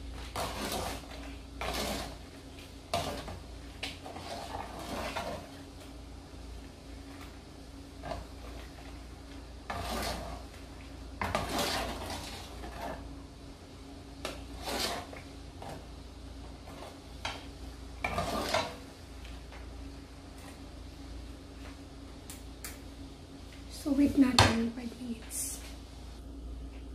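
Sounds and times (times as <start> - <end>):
metal ladle scraping a pot: 0.3 - 2.2, 4.0 - 5.6, 9.7 - 10.5, 11.2 - 13.0, 14.5 - 15.2, 18.0 - 18.8.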